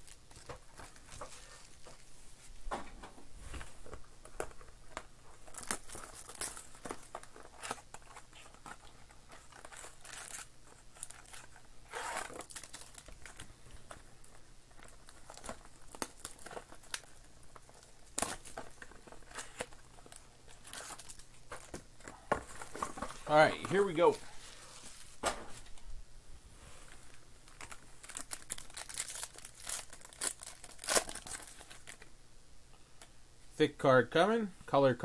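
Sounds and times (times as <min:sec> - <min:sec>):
cards rustling: 0:03.5 - 0:25.8, 0:26.9 - 0:32.1
plastic packaging crinkling: 0:03.8 - 0:24.2, 0:27.0 - 0:32.1.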